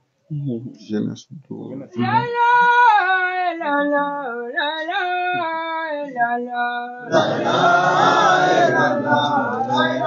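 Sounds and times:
man chanting recitation: 1.7 - 2.3, 7.1 - 10.0.

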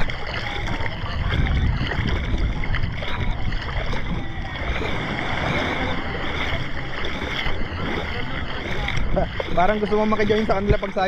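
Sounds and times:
low rumble: 0.0 - 11.0
water sloshing around wading person: 0.0 - 11.0.

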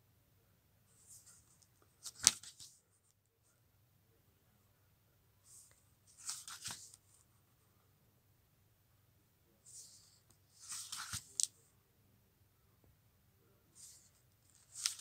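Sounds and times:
book pages rustling: 1.0 - 2.8, 5.6 - 7.1, 9.7 - 11.6, 13.8 - 15.0
page flapping: 2.0 - 2.7, 6.2 - 7.0, 10.6 - 11.5, 14.6 - 15.0.

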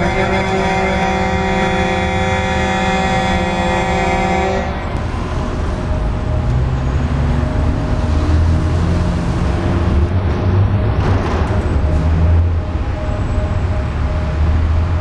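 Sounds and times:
multi-tone alarm wail: 0.0 - 7.8, 12.1 - 15.0
low street rumble: 0.0 - 15.0.

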